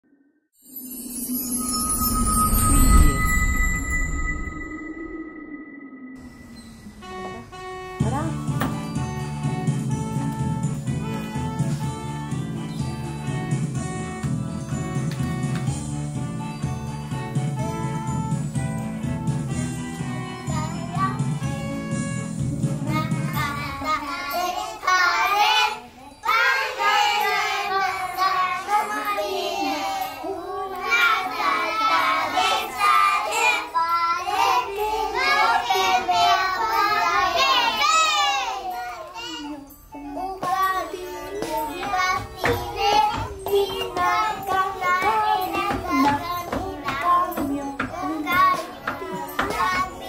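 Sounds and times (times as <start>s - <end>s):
instrumental backing music: 6.2s - 24.6s, 39.6s - 50.0s
young children singing: 22.8s - 50.0s.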